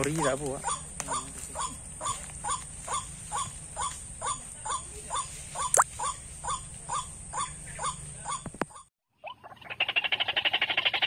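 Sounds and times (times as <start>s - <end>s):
bird croaking calls: 0.6s - 11.0s.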